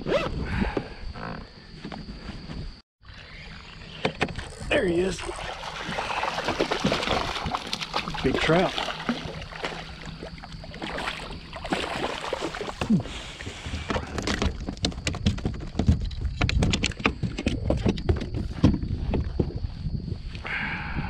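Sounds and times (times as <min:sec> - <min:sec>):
water splashing against kayak hull: 0:04.8 - 0:15.0
fish thrashing at the surface: 0:04.9 - 0:13.5.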